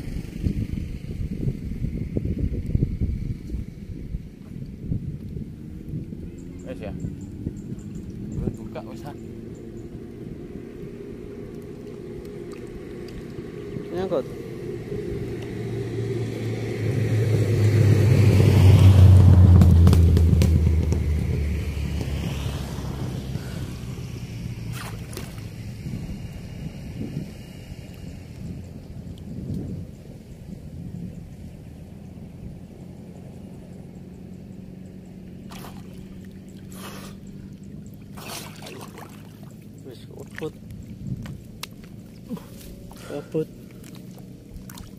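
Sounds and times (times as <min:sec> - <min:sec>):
steady low hum: 0:00.0 - 0:44.9
vehicle passing by: 0:00.0 - 0:44.9
water splashing off a net: 0:24.7 - 0:25.6, 0:35.5 - 0:37.1, 0:38.0 - 0:39.7, 0:43.8 - 0:44.9.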